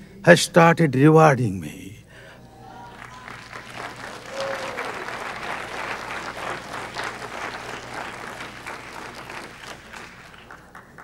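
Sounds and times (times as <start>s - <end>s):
audience applauding: 2.5s - 11.0s.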